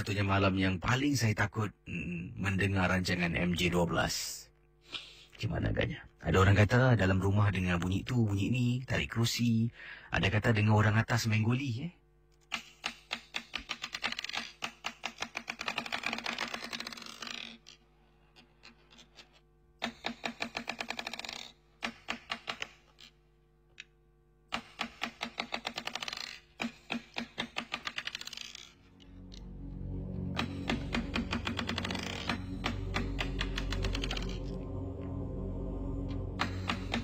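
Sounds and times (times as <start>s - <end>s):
rapid mechanical clicking: 12.5s - 17.3s, 19.8s - 22.8s, 24.5s - 28.8s, 30.4s - 34.2s
music: 28.8s - 37.0s.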